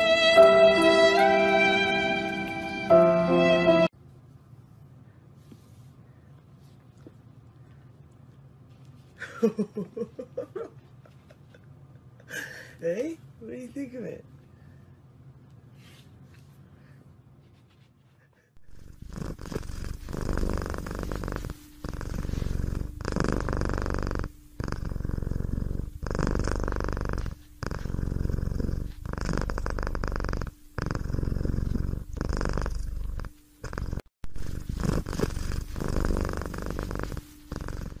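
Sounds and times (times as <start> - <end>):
cat purring: 18.6 - 38.0.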